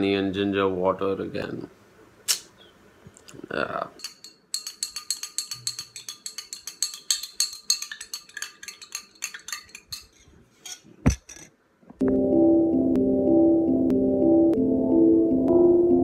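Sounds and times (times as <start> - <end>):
spoon clinking against glass: 4.0 - 10.2
thump: 11.0 - 11.3.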